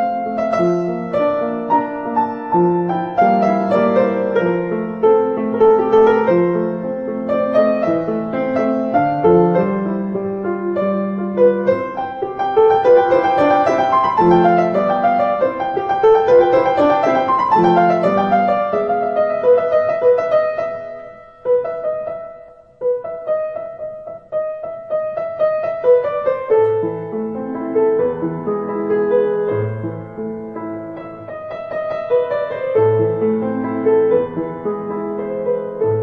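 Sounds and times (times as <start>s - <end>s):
gentle piano melody: 0.0s - 36.0s.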